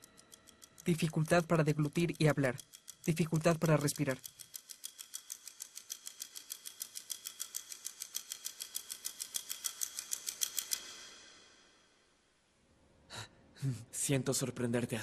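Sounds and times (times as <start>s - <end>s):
rapid keyboard and mouse clicking: 0.0s - 11.6s.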